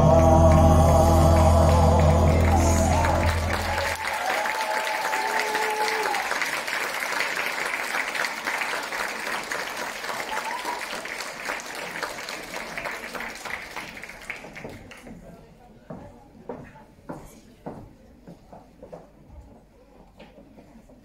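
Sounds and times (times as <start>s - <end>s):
crowd applauding: 0.0s - 15.1s.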